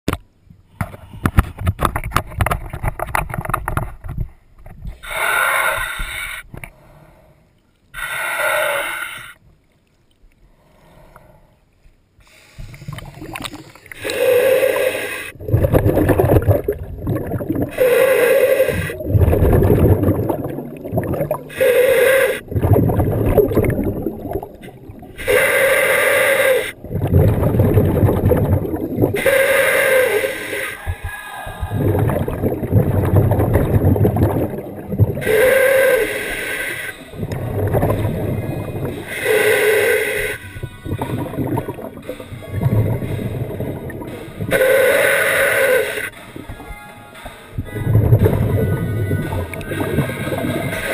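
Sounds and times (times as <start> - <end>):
diver hissing inhale: 5.0 - 9.4, 12.2 - 13.0, 13.9 - 15.4, 17.7 - 19.1, 21.4 - 22.5, 25.1 - 26.8, 29.2 - 32.0, 35.2 - 37.2, 38.8 - 40.5, 44.5 - 46.1
exhaled bubbles gushing: 12.8 - 36.3, 37.1 - 46.6, 47.6 - 50.9.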